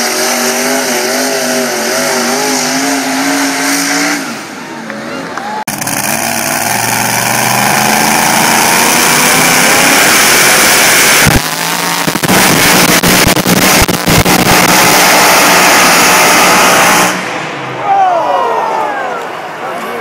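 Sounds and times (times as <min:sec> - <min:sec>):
truck engine running flat out: 0:05.6 - 0:18.4.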